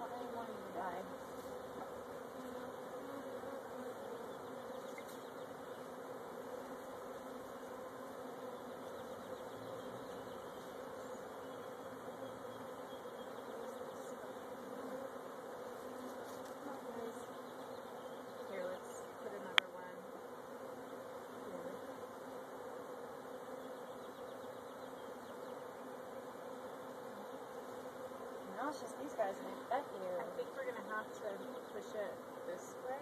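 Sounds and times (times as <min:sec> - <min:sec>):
bee swarm buzzing: 0:00.0 - 0:33.0.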